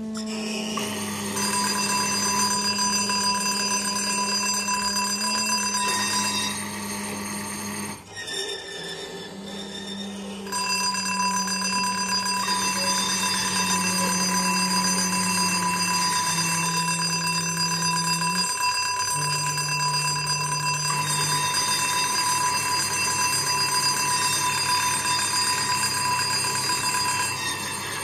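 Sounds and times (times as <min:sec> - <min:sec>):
high electronic tones: 0:10.5 - 0:28.0.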